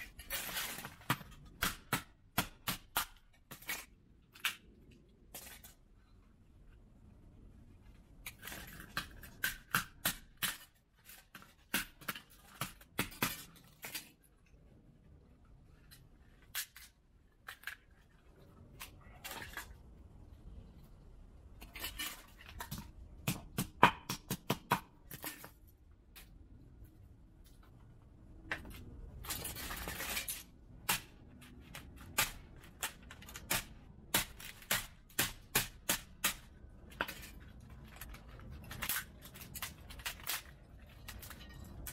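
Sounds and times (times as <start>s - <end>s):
plastic parts cracking and snapping: 0.0s - 5.8s, 8.2s - 14.6s, 15.8s - 19.9s, 28.5s - 41.9s
crunching and scraping: 0.0s - 6.9s, 7.5s - 23.2s, 25.0s - 41.9s.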